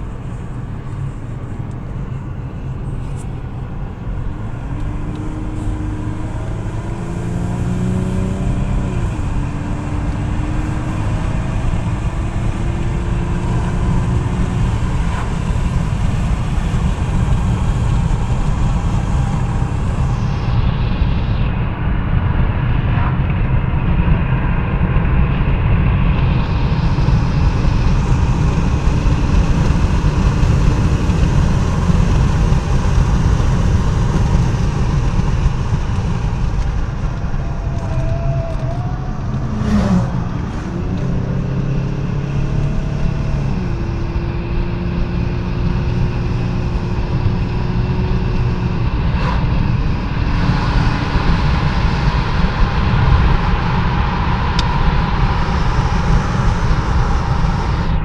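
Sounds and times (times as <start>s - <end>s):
car road and engine rumble: 0.0s - 58.0s.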